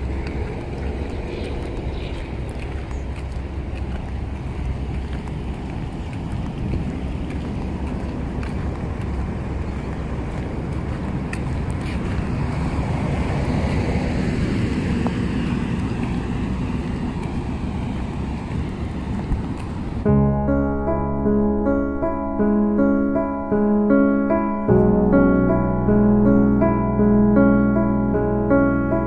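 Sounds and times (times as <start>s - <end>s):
wind buffeting microphone: 0.0s - 20.3s.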